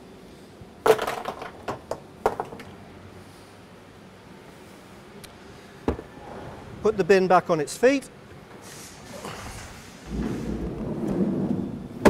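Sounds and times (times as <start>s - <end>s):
small plastic parts clattering into box: 0.8s - 2.7s.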